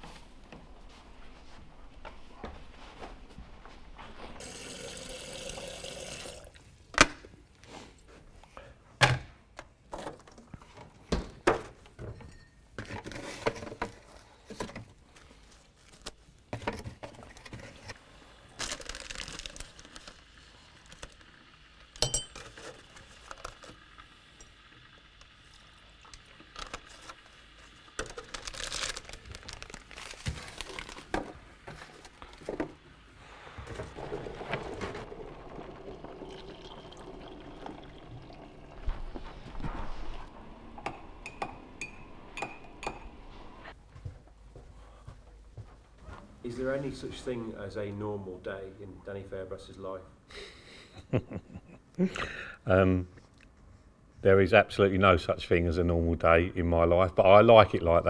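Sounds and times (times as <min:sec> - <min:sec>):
liquid pouring: 0:04.4 - 0:06.7, 0:33.6 - 0:41.8
packet rustling: 0:18.5 - 0:21.3, 0:26.4 - 0:32.6
mug and kettle clinking: 0:21.9 - 0:23.6, 0:35.0 - 0:38.6, 0:40.7 - 0:43.6.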